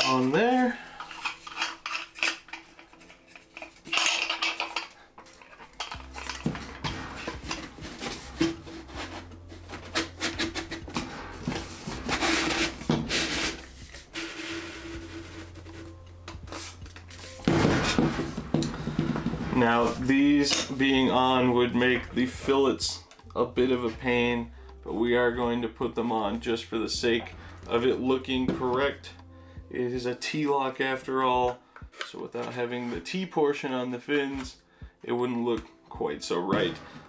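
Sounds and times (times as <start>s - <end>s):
cardboard tube scraping: 6.1s - 20.1s.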